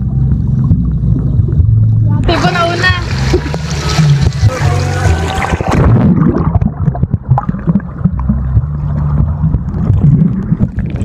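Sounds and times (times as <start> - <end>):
muffled underwater rumble: 0.0 - 11.0
underwater knocks: 5.3 - 11.0.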